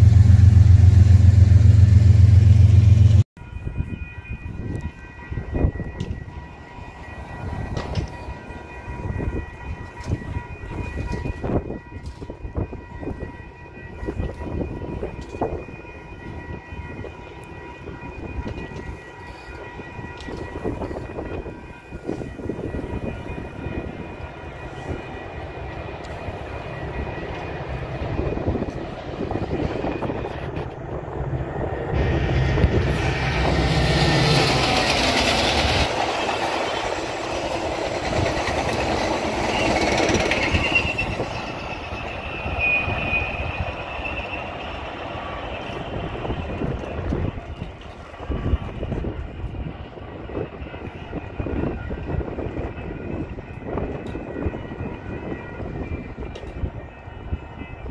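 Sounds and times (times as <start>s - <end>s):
diesel locomotive engine rumble: 0.0s - 57.9s
train wheels clickety-clack on rails: 0.0s - 57.9s
high wheel squeal: 38.0s - 46.8s.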